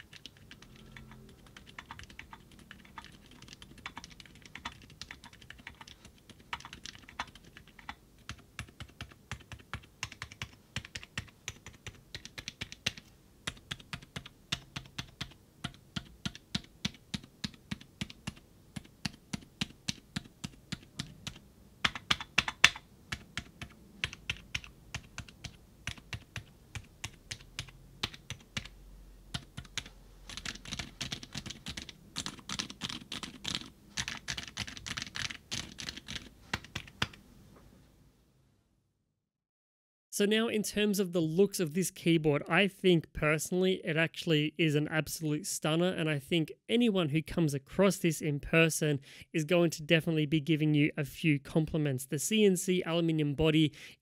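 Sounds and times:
mechanical keyboard typing: 0:00.0 - 0:37.2.

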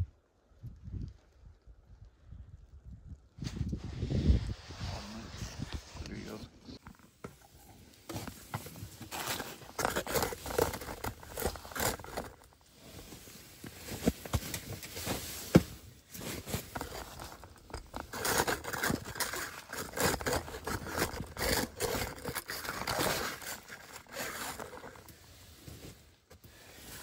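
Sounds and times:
clothing brushing: 0:08.0 - 0:27.0.

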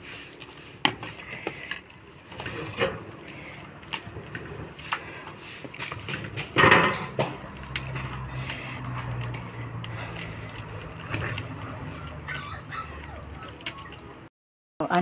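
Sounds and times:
spatula scraping in wok: 0:00.0 - 0:09.8.

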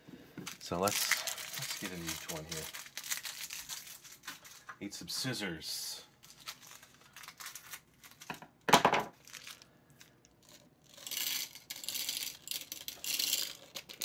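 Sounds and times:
candy balls rattling into plastic: 0:00.4 - 0:05.3, 0:06.2 - 0:14.0
plastic packet crinkling: 0:00.4 - 0:05.4, 0:06.2 - 0:14.0
scissors cutting plastic packet: 0:00.6 - 0:04.7, 0:06.3 - 0:08.4.

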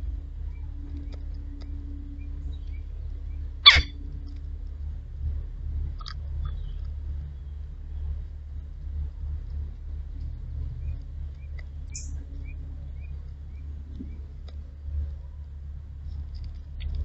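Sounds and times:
steady low rumble: 0:00.0 - 0:17.0
bird chirping: 0:00.4 - 0:04.0, 0:06.4 - 0:08.2, 0:10.7 - 0:14.4.

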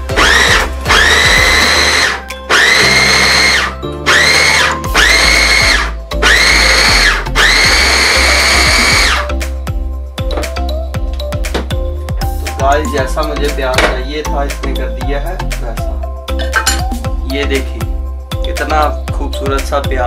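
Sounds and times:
electric food chopper whining: 0:00.0 - 0:09.3.

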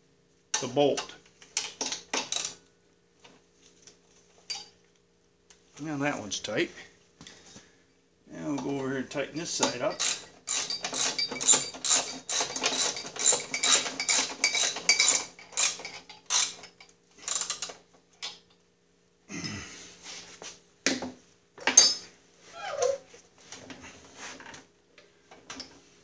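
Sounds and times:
tools clinking on metal: 0:04.5 - 0:04.7, 0:09.6 - 0:17.6, 0:21.6 - 0:22.1
ratchet wrench clicking: 0:09.9 - 0:17.7.

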